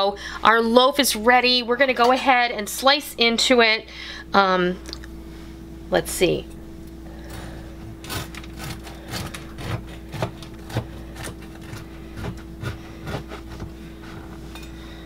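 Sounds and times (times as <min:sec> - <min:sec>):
knife sawing through bread: 0:08.0 - 0:14.3.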